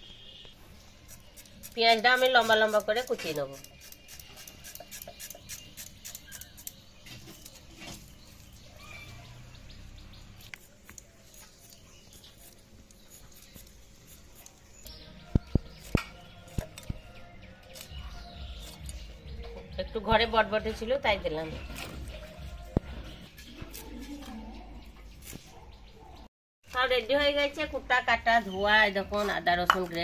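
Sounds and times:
blade slicing onion: 0:00.9 - 0:08.4, 0:10.4 - 0:17.0.

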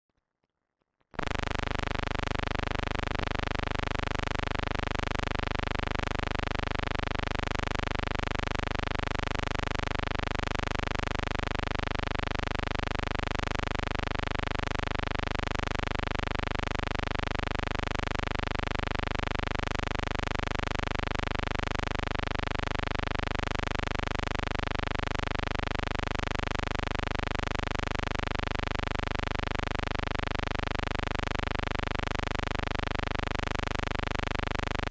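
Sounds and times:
steady electrical buzz: 0:01.2 - 0:03.5.

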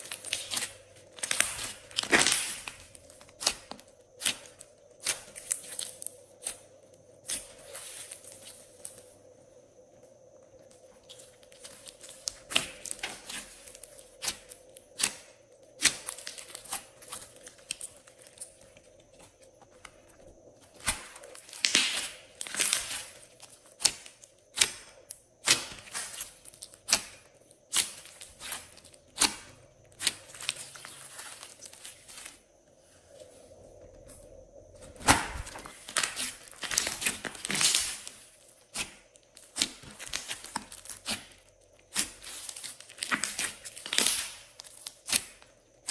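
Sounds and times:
sticky slime crackling: 0:00.0 - 0:06.6, 0:11.1 - 0:32.4, 0:35.0 - 0:45.9.

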